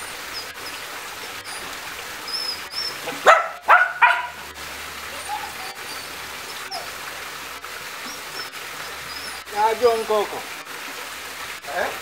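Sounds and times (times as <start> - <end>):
small dog barking: 3.0 - 4.4.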